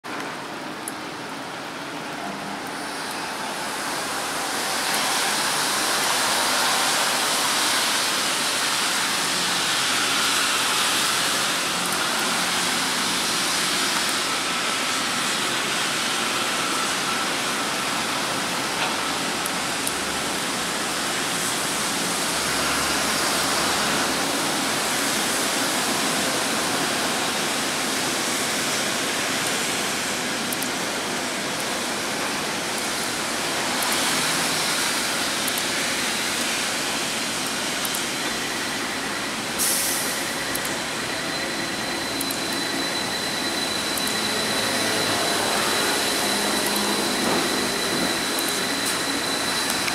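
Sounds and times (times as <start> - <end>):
city traffic: 0.0 - 49.9
elevated train running: 0.0 - 49.9
rain hissing: 2.7 - 49.9.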